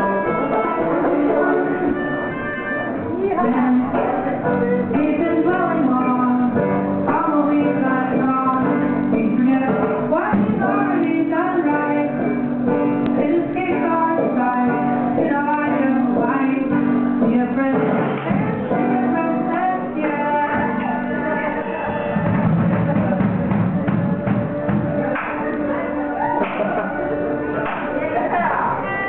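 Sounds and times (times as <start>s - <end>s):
high singing voice: 0.0s - 12.3s, 13.0s - 24.2s.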